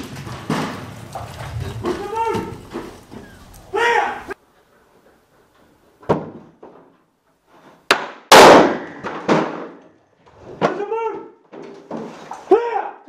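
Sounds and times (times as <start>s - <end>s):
wooden door crashing: 0.0s - 3.2s, 8.3s - 9.8s
people shouting: 1.6s - 4.4s
loud sharp explosive blast: 8.3s - 9.7s.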